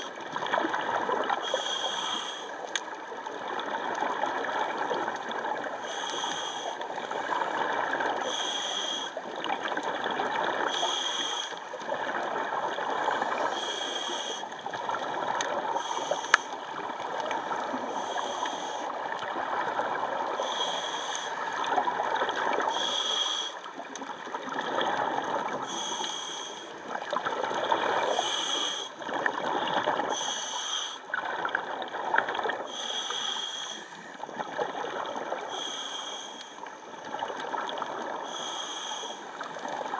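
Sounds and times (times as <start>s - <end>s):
water bubbling and gurgling: 0.0s - 39.9s
regulator breathing hiss: 1.4s - 2.6s, 5.8s - 6.8s, 8.2s - 9.2s, 10.7s - 11.6s, 13.4s - 14.5s, 15.8s - 16.6s, 17.9s - 18.9s, 20.4s - 21.5s, 22.7s - 23.7s, 25.7s - 26.8s, 28.1s - 29.0s, 30.1s - 31.0s, 32.7s - 34.2s, 35.5s - 36.6s, 38.2s - 39.3s.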